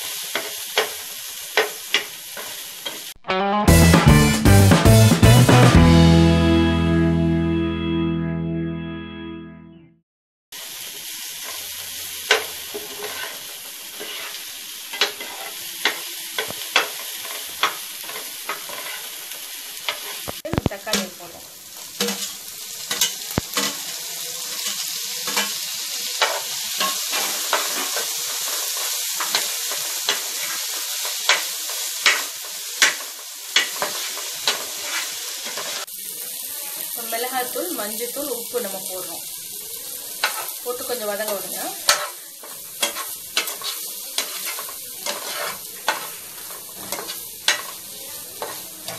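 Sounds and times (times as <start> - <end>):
onions sizzling in oil: 0.0 - 6.5, 10.5 - 48.9
spoon scraping a pan: 12.3 - 19.2, 22.0 - 23.9, 24.5 - 35.9, 40.2 - 48.9.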